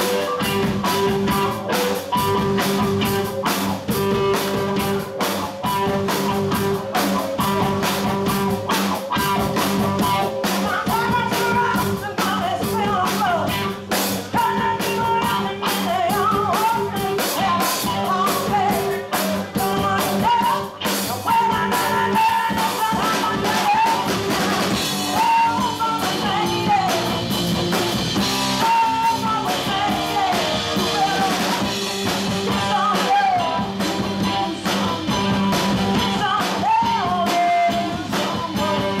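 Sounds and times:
drum kit: 0.0s - 39.0s
electric bass: 0.0s - 39.0s
electric guitar: 0.0s - 39.0s
woman singing lead vocal: 10.0s - 27.5s, 28.1s - 39.0s.

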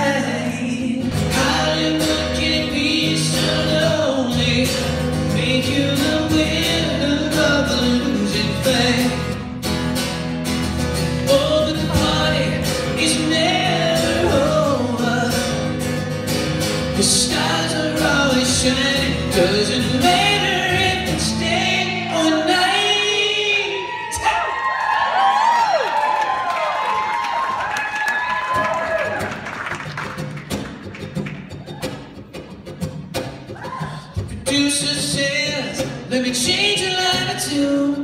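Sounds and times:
man singing: 0.0s - 9.6s, 11.0s - 24.5s, 33.8s - 38.0s
acoustic guitar strumming: 0.0s - 23.7s, 29.1s - 38.0s.

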